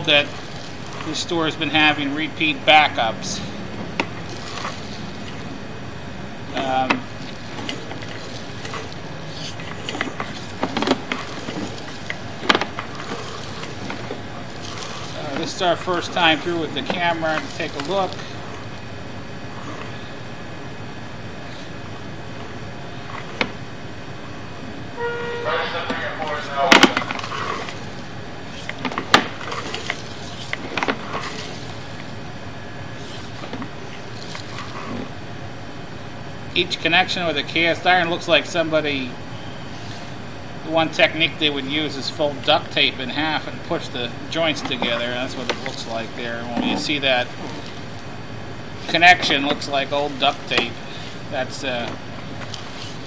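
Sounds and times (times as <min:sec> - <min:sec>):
steady background hum: 0:00.0 - 0:53.0
cable hissing in drain pipe: 0:06.6 - 0:18.8
cable clicks and knocks: 0:26.0 - 0:27.8.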